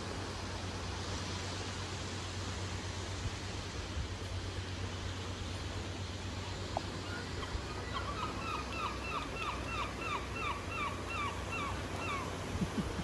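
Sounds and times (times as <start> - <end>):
gull calling: 7.0 - 13.0.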